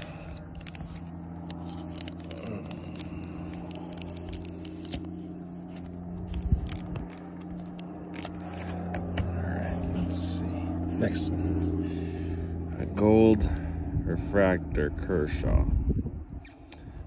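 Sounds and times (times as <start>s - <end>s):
plastic sleeve crinkling: 0.0s - 9.2s
low hum: 0.0s - 17.0s.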